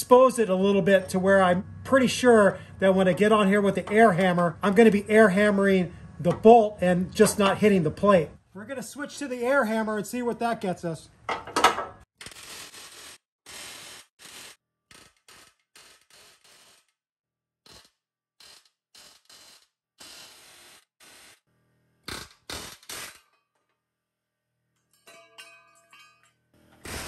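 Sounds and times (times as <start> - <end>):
pneumatic air hammer bursts: 12.2 - 17.0, 17.6 - 21.4, 22.1 - 23.3.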